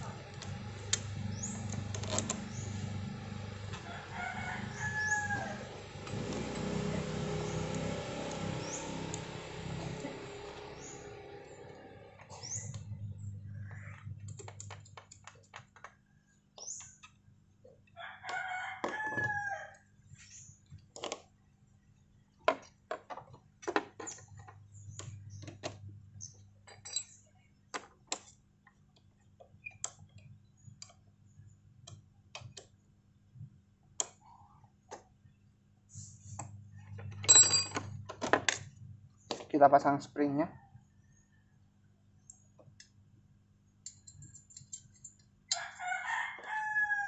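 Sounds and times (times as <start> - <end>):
rooster crowing: 3.7 - 8.9, 18.0 - 19.9, 45.5 - 47.0
metal clicks and clinks: 43.8 - 45.7.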